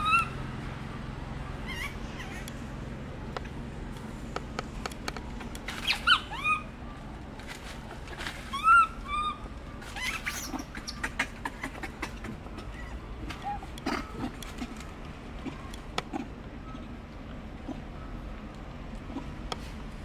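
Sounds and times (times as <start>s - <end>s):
monkey squeaky calls: 0.0s - 0.4s, 1.6s - 2.5s, 5.7s - 6.8s, 8.3s - 14.6s
faint clicks and rustles: 7.0s - 8.7s, 9.4s - 20.0s.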